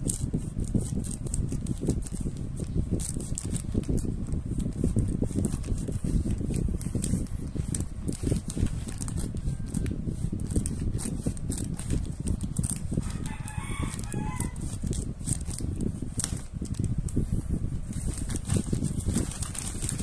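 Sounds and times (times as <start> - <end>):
plastic pouch crinkling: 0.0 - 16.9, 17.9 - 20.0
rooster crowing: 13.1 - 14.6.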